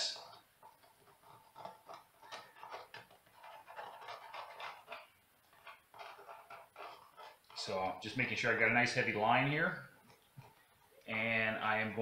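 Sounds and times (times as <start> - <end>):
pencil scratching on wood: 0.2 - 7.6.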